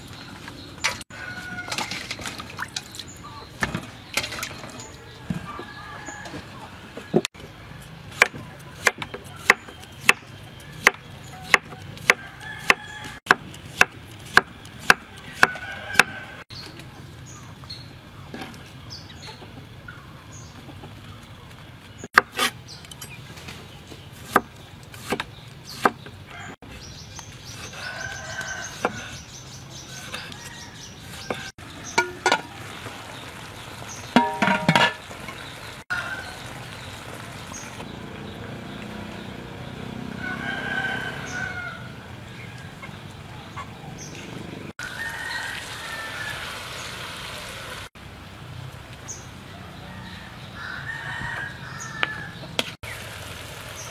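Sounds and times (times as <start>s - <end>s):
knife chopping on wooden board: 24.2s - 26.0s.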